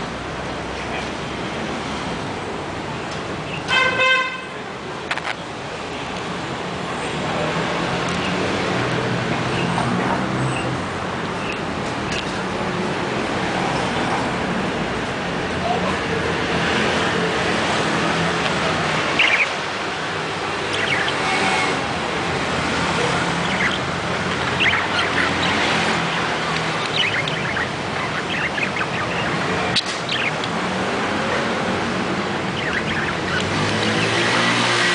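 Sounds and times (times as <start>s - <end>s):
budgerigars chirping: 19.0s - 19.6s, 20.6s - 21.8s, 22.6s - 30.5s, 32.4s - 34.9s.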